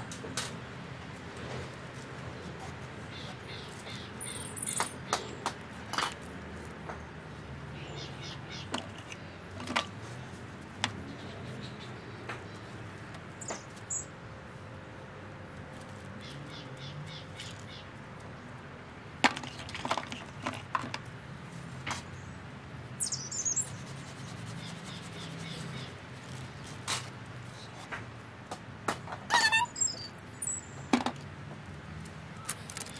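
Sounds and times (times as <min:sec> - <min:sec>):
high bird chirps: 0:03.1 - 0:05.4, 0:13.4 - 0:14.1, 0:23.0 - 0:23.9, 0:29.3 - 0:30.9.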